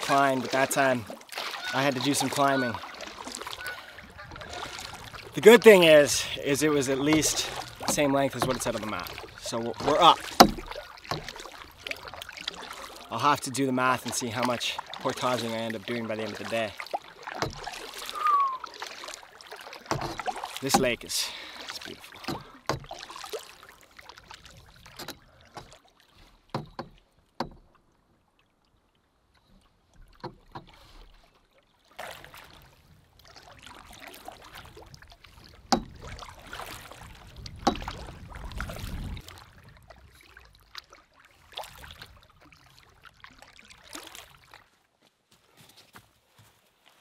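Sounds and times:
paddle knocks: 0:00.0 - 0:13.2, 0:14.0 - 0:27.8, 0:34.5 - 0:39.2
paddle splashing in water: 0:00.0 - 0:44.9.

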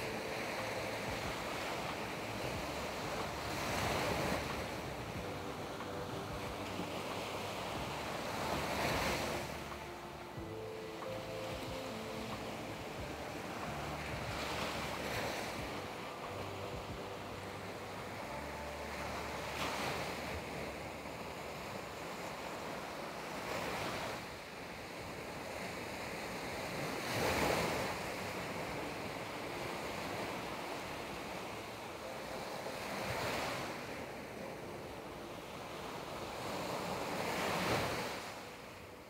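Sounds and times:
sea waves breaking: 0:00.0 - 0:39.0.

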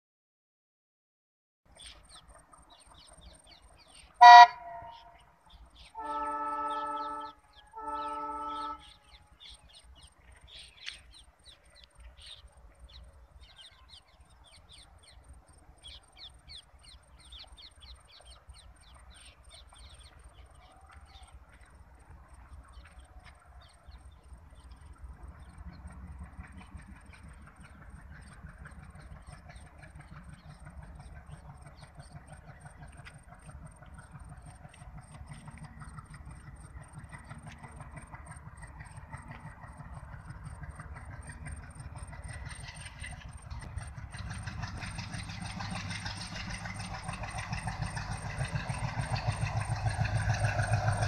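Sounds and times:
birds chirping: 0:01.7 - 0:43.8
locomotive horn blasts: 0:04.2 - 0:05.2, 0:05.9 - 0:09.3.

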